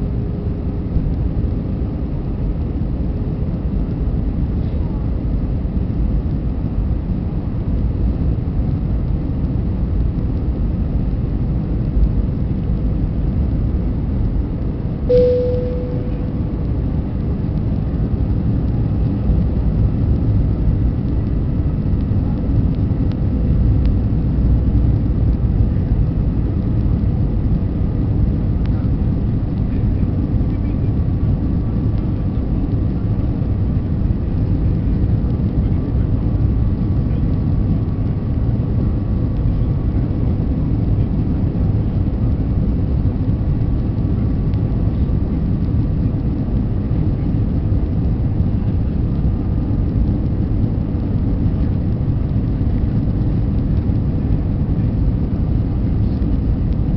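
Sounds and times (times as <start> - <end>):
airplane engines rumbling: 0.0 - 56.9
short cabin tone: 15.1 - 16.7.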